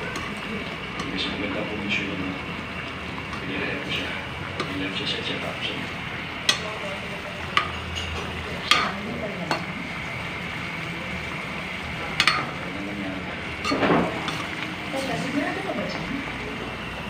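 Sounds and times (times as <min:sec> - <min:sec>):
stew bubbling in a wok: 0:00.0 - 0:17.0
metal spoon clinking against pan: 0:07.5 - 0:09.7, 0:12.2 - 0:12.6.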